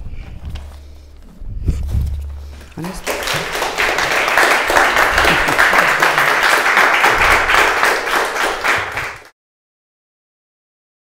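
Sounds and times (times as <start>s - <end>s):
audience applauding: 2.8s - 9.3s.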